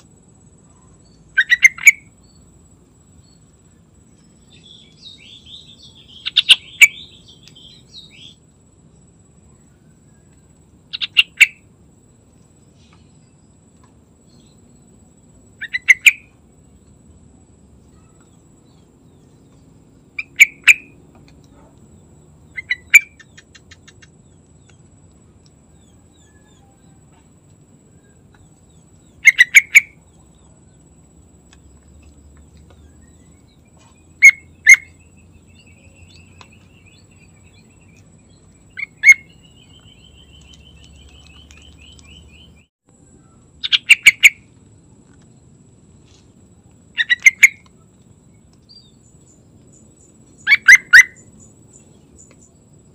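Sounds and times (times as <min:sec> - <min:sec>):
soft bird twittering: 0:00.6 - 0:02.5, 0:03.1 - 0:08.5, 0:09.4 - 0:11.6, 0:14.2 - 0:16.4, 0:17.8 - 0:24.9, 0:27.8 - 0:30.8, 0:31.6 - 0:44.5, 0:47.0 - 0:52.6
bulbul singing: 0:00.6 - 0:08.6, 0:09.4 - 0:11.7, 0:14.2 - 0:16.9, 0:17.8 - 0:44.5, 0:46.9 - 0:52.7.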